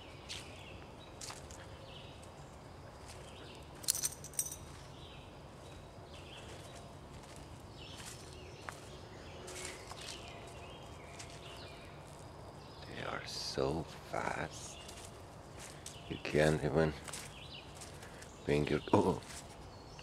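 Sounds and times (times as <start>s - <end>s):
crackles and rustles on forest floor: 0.0s - 20.0s.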